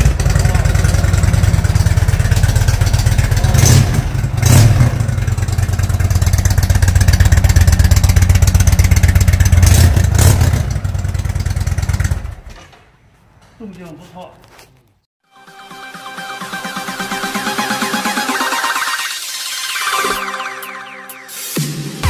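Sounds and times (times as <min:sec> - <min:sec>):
motorcycle engine revving: 0:00.0 - 0:12.5.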